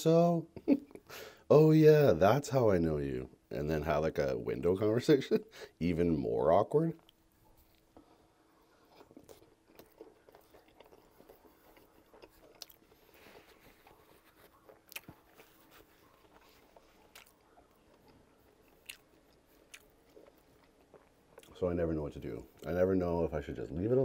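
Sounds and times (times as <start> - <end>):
chewing food: 7.0 - 21.8.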